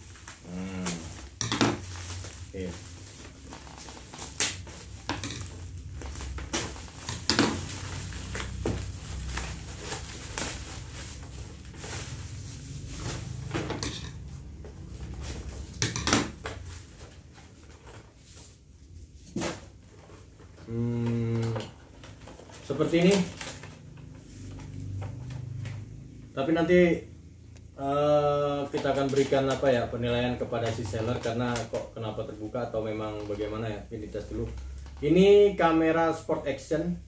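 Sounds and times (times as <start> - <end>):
sharp crackles and knocks: 0.0 - 18.1
plastic packaging crinkling: 0.0 - 18.7, 19.4 - 26.1, 28.4 - 36.0.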